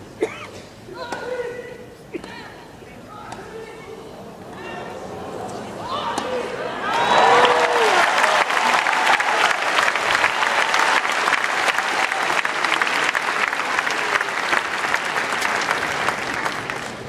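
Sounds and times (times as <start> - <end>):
crowd applauding: 6.8 - 17.0.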